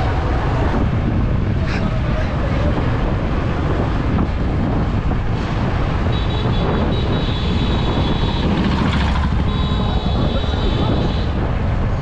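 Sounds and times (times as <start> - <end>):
wind buffeting microphone: 0.0 - 12.0
motorcycle engine cruising: 3.5 - 11.9.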